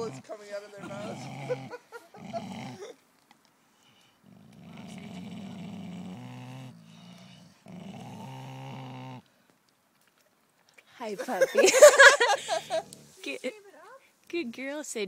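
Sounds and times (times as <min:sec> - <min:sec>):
dogs growling: 0:00.0 - 0:03.0, 0:04.2 - 0:09.3, 0:12.2 - 0:13.2.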